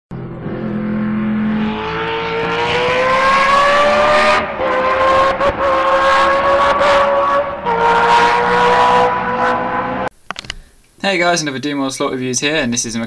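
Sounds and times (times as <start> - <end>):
racing car engine accelerating: 0.1 - 10.1.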